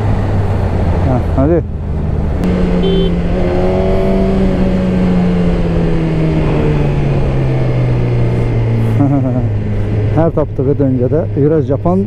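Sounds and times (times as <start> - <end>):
motorcycle engine running: 2.4 - 10.1.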